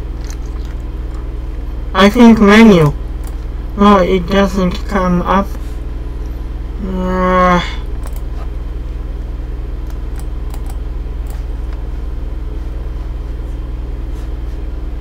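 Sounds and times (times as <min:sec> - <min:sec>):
low electrical hum: 0:00.0 - 0:15.0
man humming: 0:06.8 - 0:07.9
computer mouse clicks: 0:09.9 - 0:11.4.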